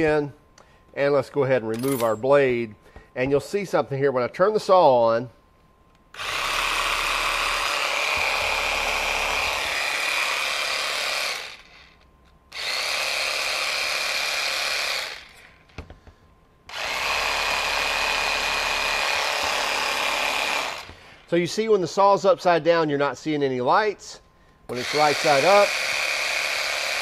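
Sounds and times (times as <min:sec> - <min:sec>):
jigsaw running with high whine: 0:06.1 - 0:15.6, 0:16.7 - 0:21.3, 0:24.7 - 0:27.0.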